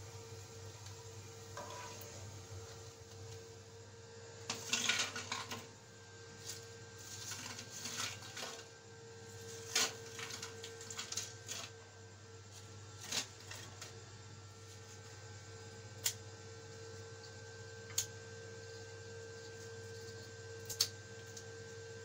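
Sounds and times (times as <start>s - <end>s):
faint steady hum: 0.0s - 22.0s
crackers clattering onto plate: 4.5s - 5.7s.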